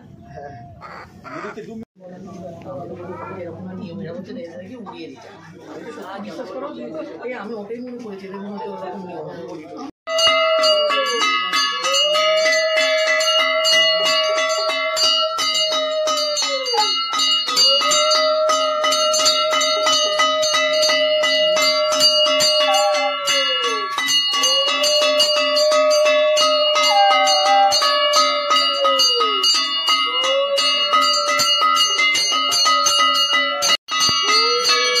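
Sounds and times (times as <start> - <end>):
hand bell ringing rapidly: 10.1 - 35.0.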